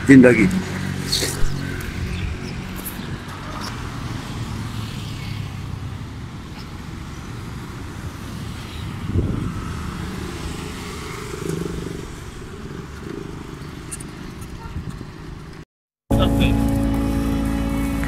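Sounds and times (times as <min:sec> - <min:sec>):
motorcycles passing: 0:00.0 - 0:18.0.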